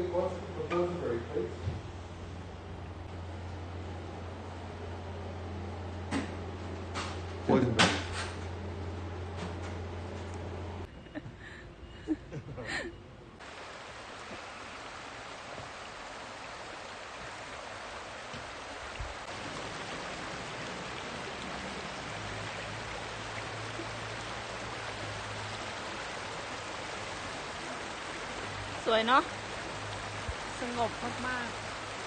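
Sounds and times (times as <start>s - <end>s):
water flowing over rocks: 13.4s - 32.0s.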